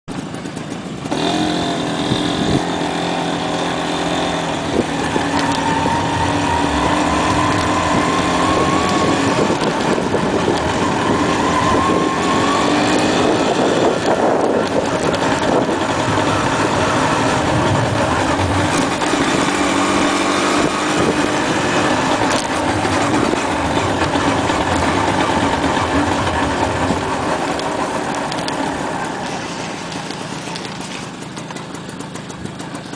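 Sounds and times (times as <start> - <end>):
motorcycle engine running: 0.1 - 32.9.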